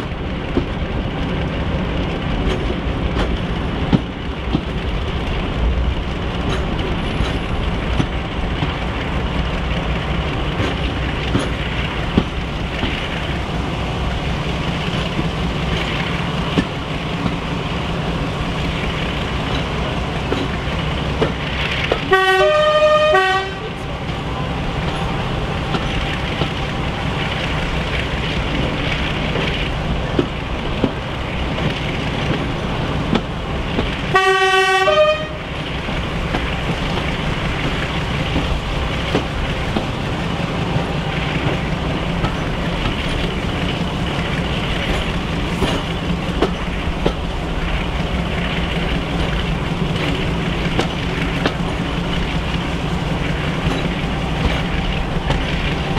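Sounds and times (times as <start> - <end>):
train wheels on rails: 0.0 - 55.9
two-tone locomotive horn: 22.0 - 25.5, 34.1 - 35.6.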